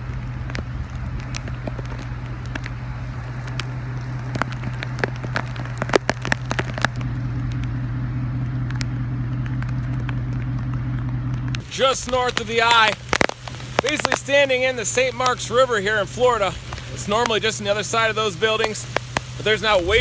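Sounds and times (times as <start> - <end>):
steady low hum: 0.0 - 17.3
rain and wind: 0.0 - 20.0
raindrops clicking on microphone: 0.0 - 20.0.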